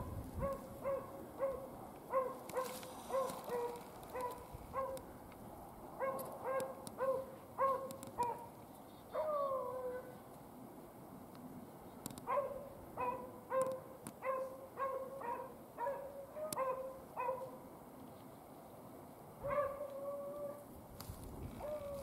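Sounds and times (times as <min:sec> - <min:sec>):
dog barking and baying: 0:00.4 - 0:05.0, 0:06.0 - 0:08.5, 0:09.1 - 0:10.2, 0:12.3 - 0:17.6, 0:19.4 - 0:20.6, 0:21.6 - 0:22.0.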